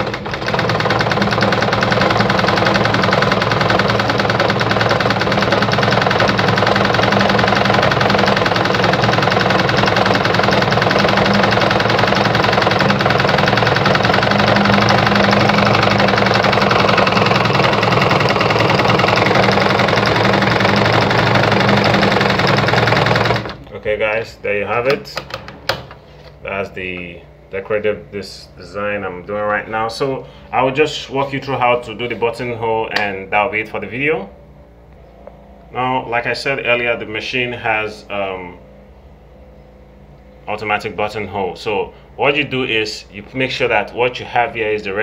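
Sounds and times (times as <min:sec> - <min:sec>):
sewing machine running: 0:00.0 - 0:23.7.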